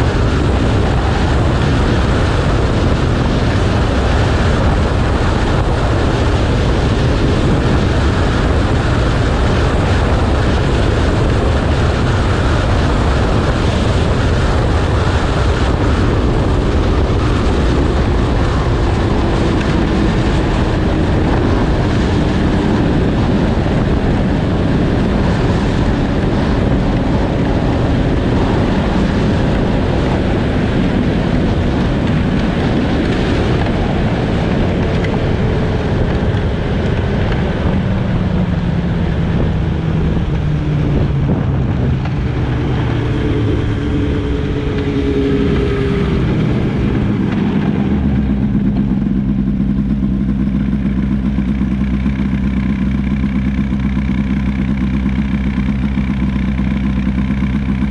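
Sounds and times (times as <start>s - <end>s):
snowmobile engine running: 0.0s - 57.9s.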